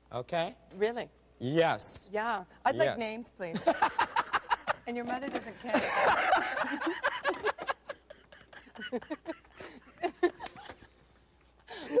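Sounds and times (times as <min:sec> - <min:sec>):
quiet breathy laughter: 0:07.8 - 0:11.0.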